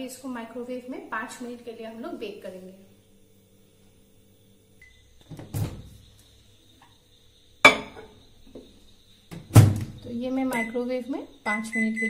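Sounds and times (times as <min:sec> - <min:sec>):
glass dish clinking on turntable: 0:07.7 - 0:08.1.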